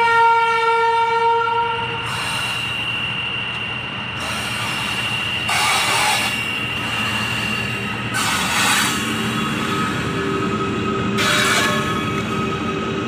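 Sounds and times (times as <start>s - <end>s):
locomotive horn blast: 0.0s - 2.0s, 11.1s - 12.2s
freight train running on rails: 0.0s - 13.0s.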